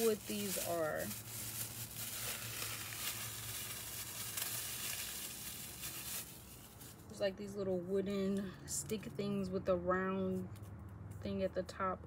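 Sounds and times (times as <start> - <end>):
packaging crinkling: 0.0 - 7.1.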